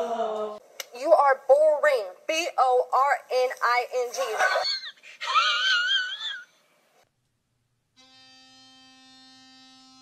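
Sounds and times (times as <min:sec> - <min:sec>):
electric toothbrush buzzing: 0:08.0 - 0:10.0.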